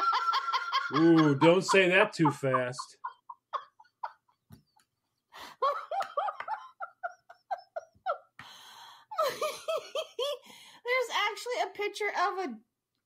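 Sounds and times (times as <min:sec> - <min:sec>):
person laughing: 0:00.0 - 0:04.6, 0:05.4 - 0:08.3.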